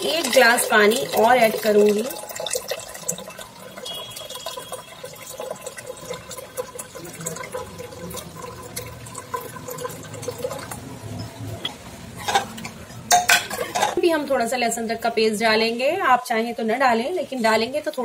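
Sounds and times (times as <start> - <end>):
water pouring and splashing: 0.0 - 14.0
metal ladle clinking pot: 12.2 - 14.0.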